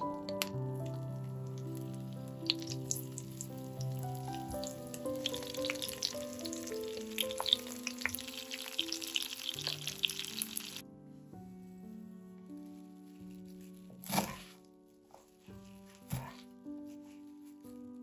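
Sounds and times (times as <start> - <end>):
soft background music: 0.0 - 18.0
vegetables frying in oil: 2.5 - 10.8.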